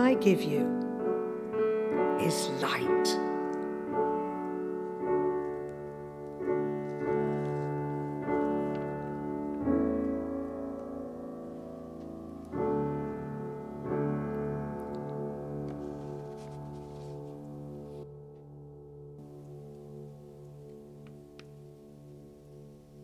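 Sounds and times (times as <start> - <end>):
slow piano chords: 0.0 - 23.0.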